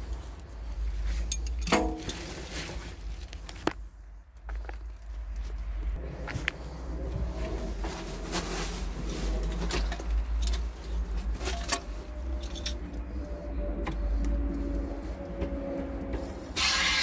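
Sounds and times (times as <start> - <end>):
low rumble: 0.0 - 16.6.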